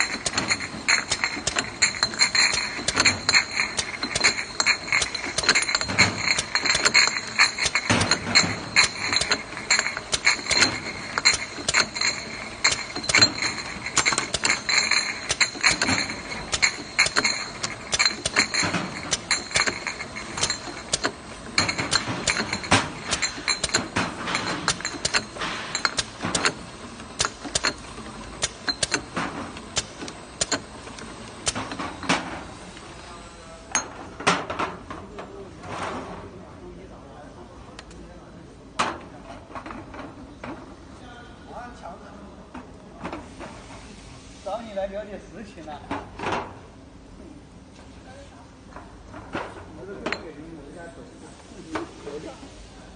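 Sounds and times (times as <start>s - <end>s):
glass bottles clinking: 0.0s - 30.8s, 31.4s - 32.3s.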